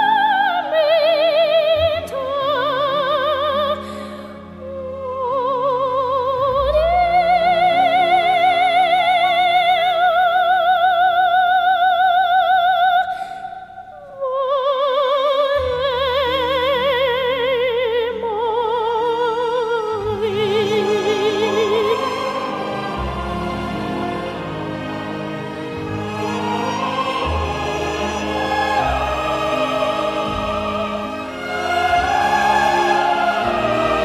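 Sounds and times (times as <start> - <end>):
operatic high voice singing: 4.6 - 34.0
sustained accompaniment: 19.8 - 34.0.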